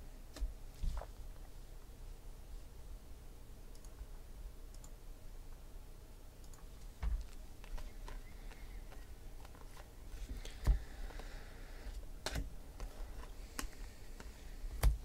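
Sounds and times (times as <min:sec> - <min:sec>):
cards flipping and snapping: 0:07.2 - 0:11.3.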